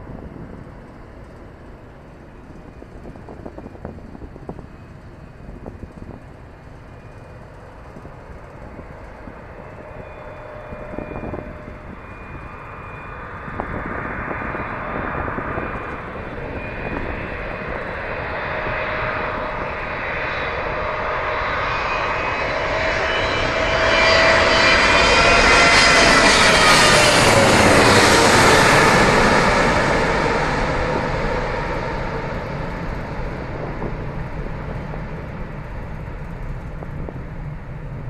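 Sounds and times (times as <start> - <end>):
jet engines rumbling and whining: 0.0 - 38.0.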